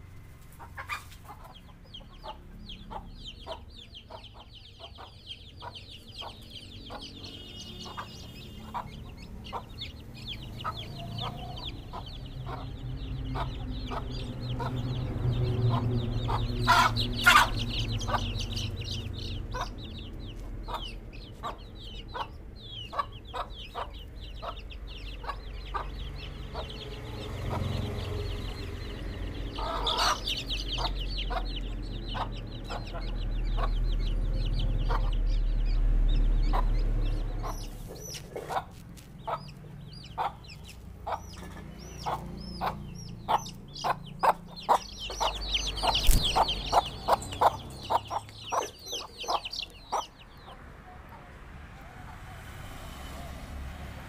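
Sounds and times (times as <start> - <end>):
chickens clucking: 0.0 - 52.4
chicks peeping shrilly: 0.0 - 53.4.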